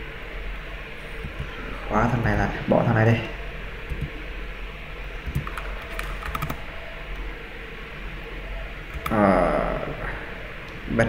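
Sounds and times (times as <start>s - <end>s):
low steady hum: 0.0s - 11.0s
keyboard and mouse clicks: 3.9s - 4.1s, 5.2s - 6.6s, 8.9s - 9.2s.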